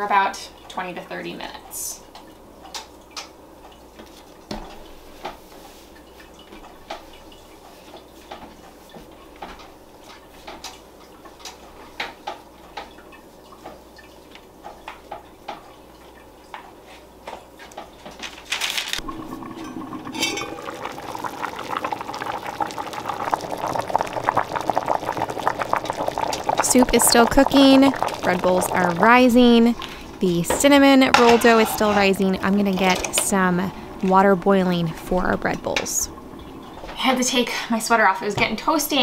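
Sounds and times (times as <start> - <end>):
soup bubbling at a boil: 19.0 - 38.0.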